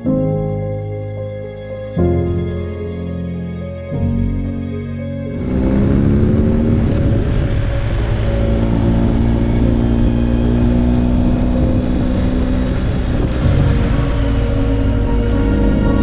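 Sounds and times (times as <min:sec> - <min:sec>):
wind rushing over microphone: 0:05.3 - 0:16.0
motorcycle engine running: 0:05.4 - 0:16.0.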